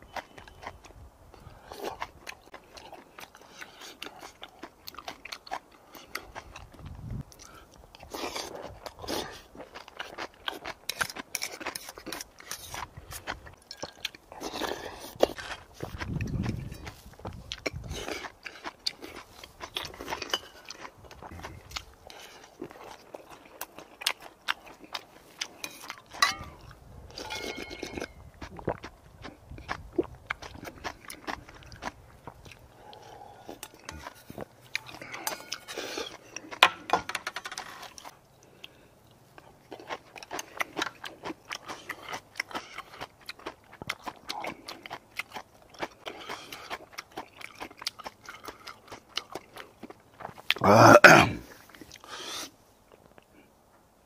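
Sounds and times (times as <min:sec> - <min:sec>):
crunching and chewing: 0:00.0 - 0:53.9
spoon scraping metal bowl: 0:27.1 - 0:28.0.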